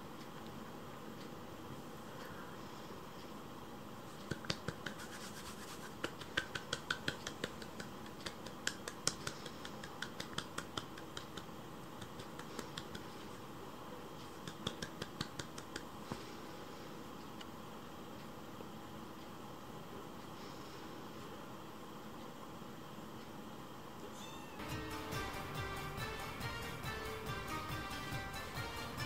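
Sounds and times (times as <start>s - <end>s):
kittens scratching on blanket: 4.1s - 13.3s.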